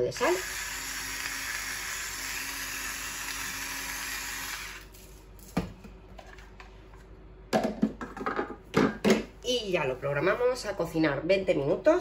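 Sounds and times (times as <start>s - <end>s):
electric salt grinder whirring: 0.0s - 5.0s.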